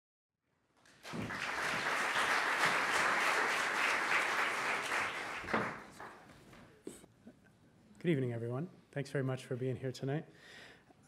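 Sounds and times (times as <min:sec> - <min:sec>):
large audience applauding: 0:00.8 - 0:06.4.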